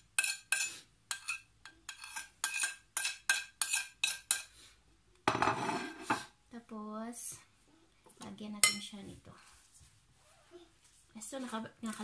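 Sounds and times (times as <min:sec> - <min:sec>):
spoon scraping and tapping plate: 0:00.0 - 0:04.5, 0:05.3 - 0:06.3, 0:08.6 - 0:08.9.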